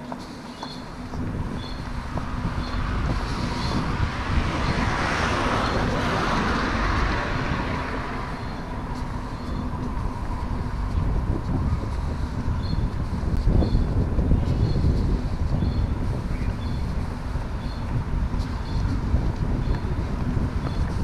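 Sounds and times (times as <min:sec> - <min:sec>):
traffic rumble: 0:00.0 - 0:21.0
car passing by: 0:02.3 - 0:10.0.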